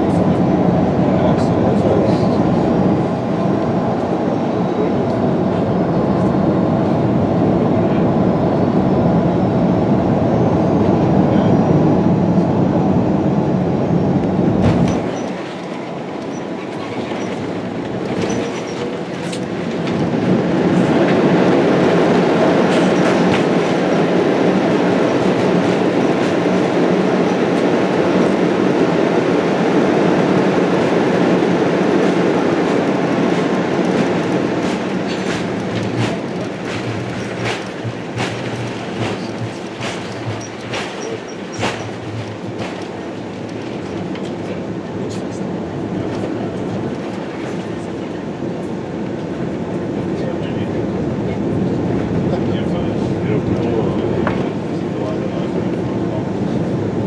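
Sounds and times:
airplane engines and airflow rushing: 0.0 - 57.0
wheels rumbling on runway: 0.0 - 57.0
knocks: 34.6 - 43.0.

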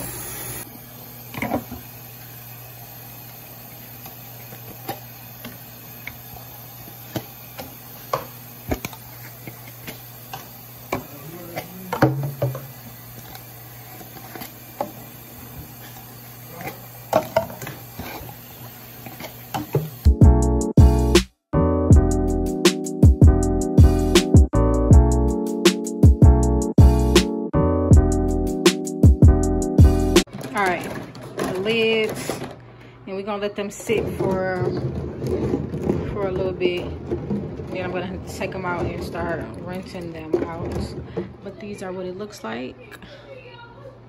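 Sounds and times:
tap water running into sink: 1.2 - 20.1
plastic containers clattering: 7.1 - 13.4, 30.3 - 41.8
piano music: 20.0 - 30.3.

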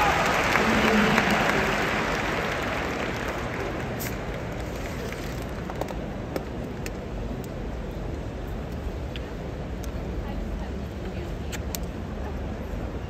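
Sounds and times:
crowd applause: 0.0 - 5.5
murmur of large crowd: 0.0 - 13.0.

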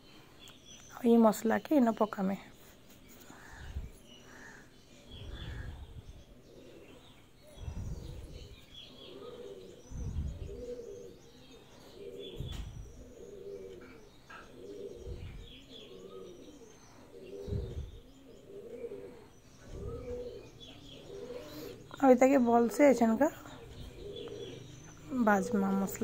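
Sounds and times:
small birds chirping: 0.0 - 26.0
pigeons cooing: 3.1 - 26.0.

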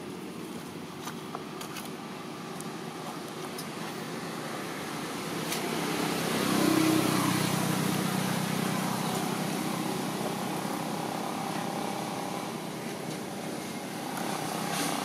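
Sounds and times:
motor engine passing by: 3.7 - 15.0.

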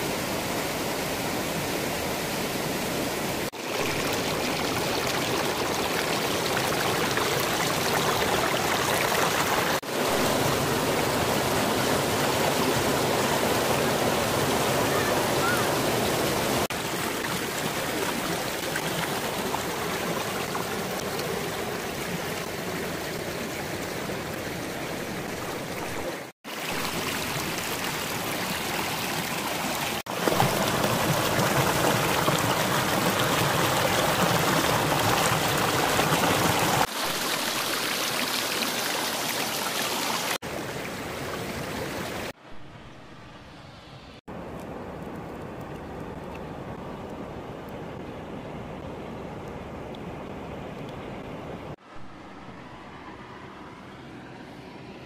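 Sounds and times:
river rushing over boulders: 0.0 - 42.4.

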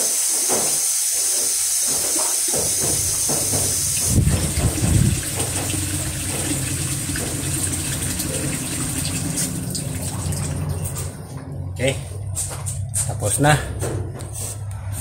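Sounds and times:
tap water gushing into metal wok: 2.2 - 11.3.

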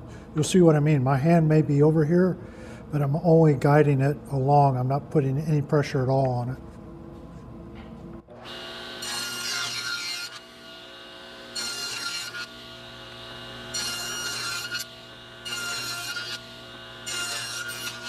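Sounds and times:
saw cutting wood: 8.3 - 18.0
table saw whining: 8.3 - 18.0.

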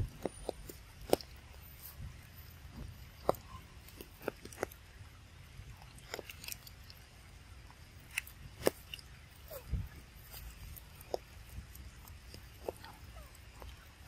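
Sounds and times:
monkey chewing food: 0.0 - 4.9, 5.6 - 7.2, 7.8 - 14.0.

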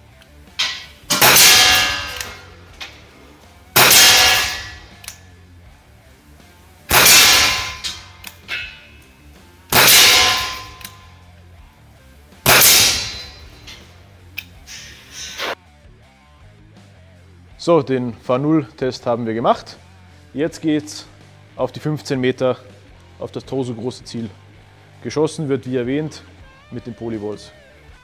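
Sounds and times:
air pistol shots with echo: 1.0 - 2.6, 3.8 - 5.2, 6.9 - 8.8, 9.7 - 11.1, 12.4 - 13.9.

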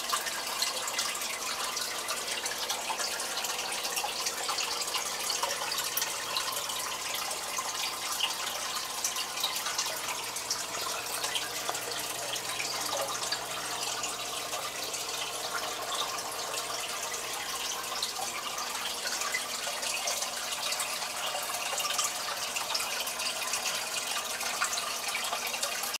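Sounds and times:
water trickling and splashing: 0.0 - 26.0.

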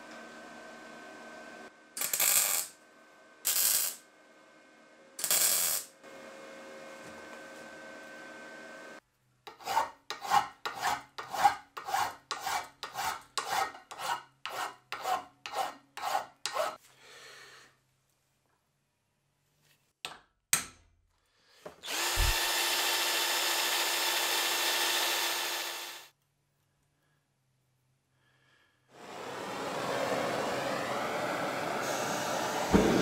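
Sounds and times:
file rasping on steel: 9.5 - 16.8
power tool running: 21.8 - 26.1, 29.0 - 33.0.

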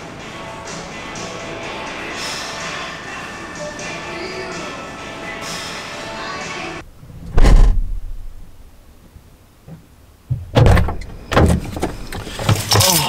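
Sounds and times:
heavy low thump: 6.8 - 8.8, 10.3 - 11.6
knocks and handling noise: 7.2 - 13.0.

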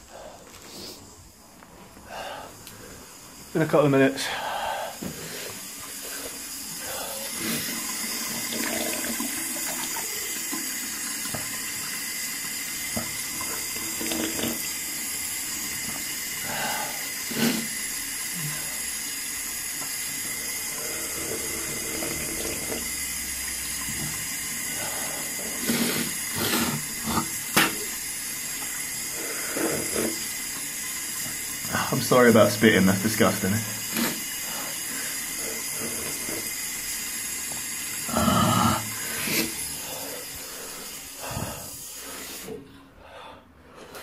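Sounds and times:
tap running into sink: 7.9 - 14.7, 26.0 - 28.8
man spitting into basin: 16.5 - 17.9, 24.9 - 28.0, 38.0 - 39.7.

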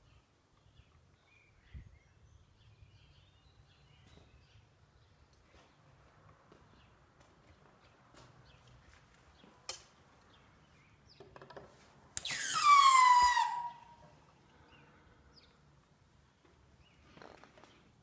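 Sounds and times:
metal screech: 12.3 - 14.0.

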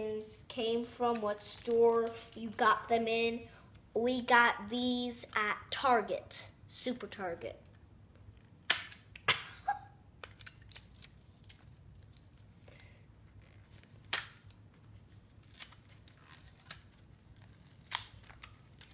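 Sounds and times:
plastic packaging clicks and crinkles: 1.1 - 2.6, 10.2 - 18.9.

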